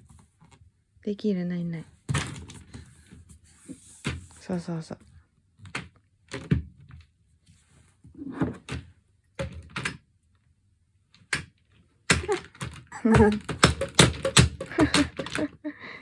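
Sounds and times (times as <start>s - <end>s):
bottles knocking in plastic basket: 12.1s - 15.5s.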